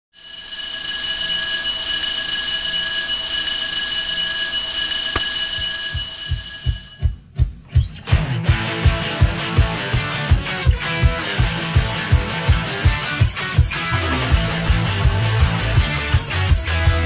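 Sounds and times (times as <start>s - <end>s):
electric bell ringing: 0.1s - 7.1s.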